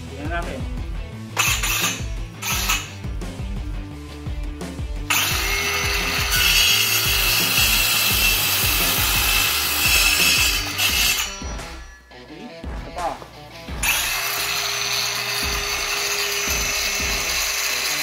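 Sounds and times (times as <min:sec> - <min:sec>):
circular saw cutting wood: 0:01.4 - 0:03.0, 0:05.1 - 0:12.0, 0:13.8 - 0:18.0.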